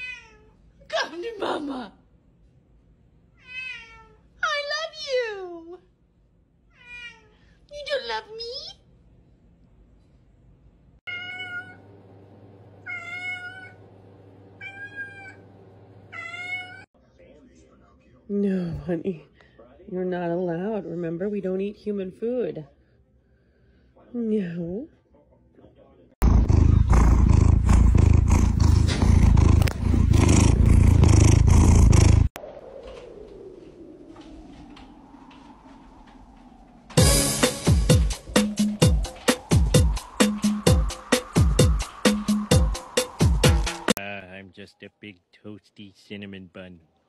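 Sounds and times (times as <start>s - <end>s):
cat meowing: 0.0s - 0.6s, 3.4s - 4.3s, 6.7s - 7.4s, 11.1s - 11.8s, 12.9s - 13.8s, 14.6s - 15.4s, 16.1s - 16.9s
cat purring: 26.2s - 32.4s.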